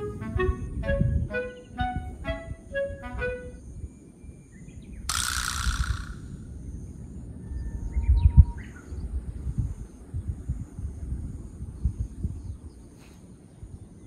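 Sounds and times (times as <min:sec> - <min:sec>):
high-pitched drone: 0:00.0 - 0:03.6.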